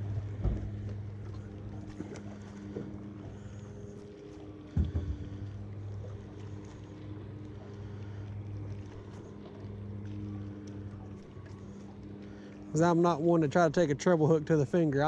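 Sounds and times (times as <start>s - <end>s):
steady low hum: 0.0s - 15.0s
knock on kayak: 4.7s - 5.5s.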